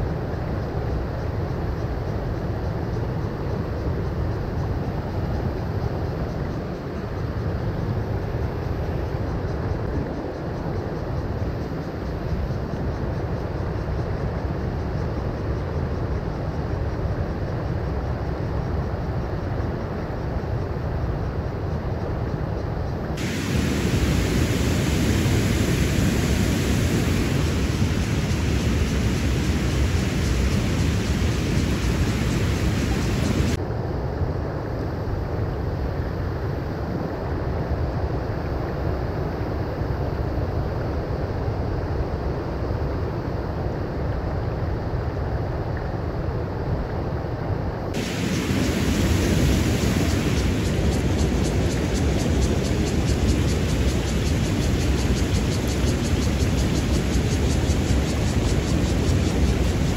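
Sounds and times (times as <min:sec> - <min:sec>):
creek water rushing: 0:23.2 - 0:33.6, 0:48.0 - 0:59.9.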